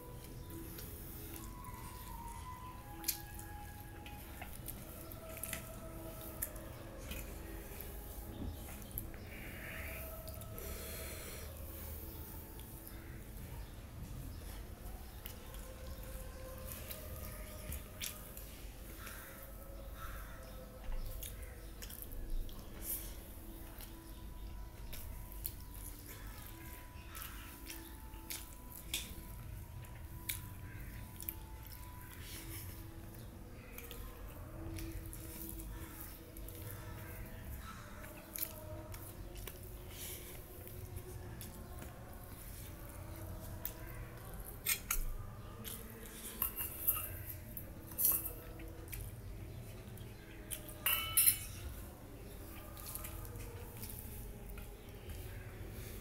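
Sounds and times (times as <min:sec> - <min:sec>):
chewing: 0:00.0 - 0:56.0
spoon clinking against metal bowl: 0:46.4 - 0:47.4, 0:50.8 - 0:51.8.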